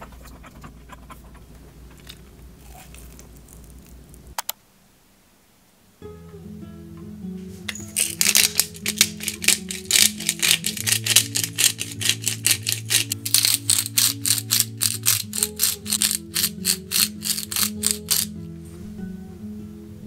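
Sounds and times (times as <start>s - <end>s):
pepper mill grinding: 2.0s - 4.0s, 7.7s - 18.3s
soft acoustic guitar music: 6.0s - 12.5s, 18.3s - 20.0s.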